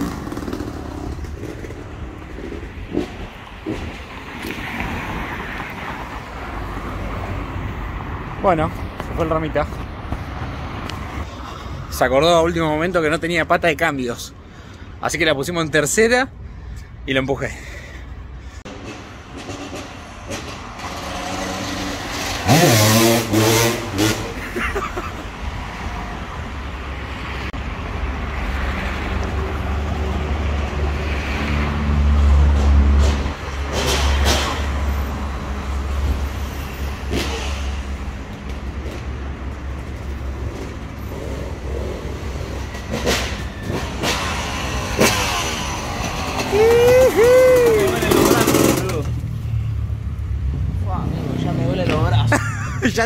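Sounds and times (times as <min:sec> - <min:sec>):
motocross bike engine revving: 0:00.0 - 0:03.1, 0:19.4 - 0:24.5, 0:41.1 - 0:49.2.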